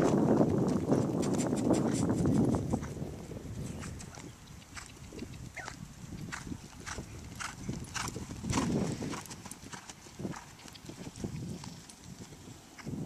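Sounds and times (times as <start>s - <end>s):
horse hoofbeats on dirt: 0.0s - 13.0s.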